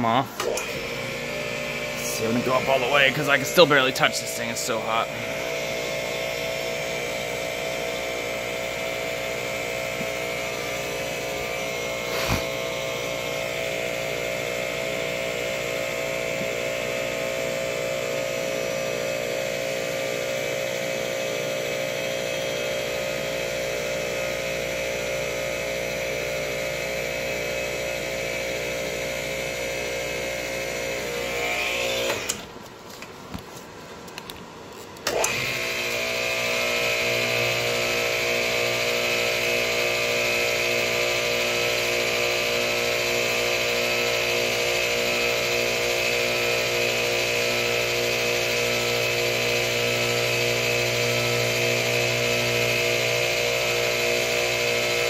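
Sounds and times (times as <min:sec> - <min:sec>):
electric fan humming: 0:00.0 - 0:21.4.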